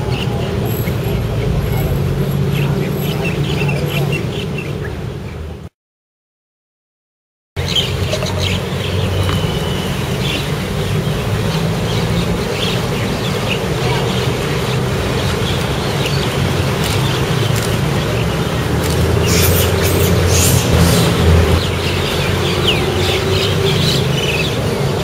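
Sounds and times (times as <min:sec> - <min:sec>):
bird chirps: 0:07.6 - 0:11.0.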